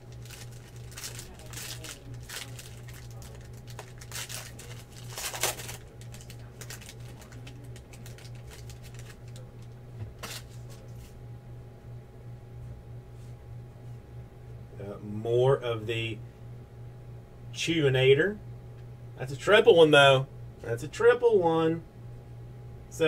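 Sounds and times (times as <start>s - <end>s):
foil wrappers crinkling: 0.0s - 10.8s
low electrical hum: 0.0s - 23.0s.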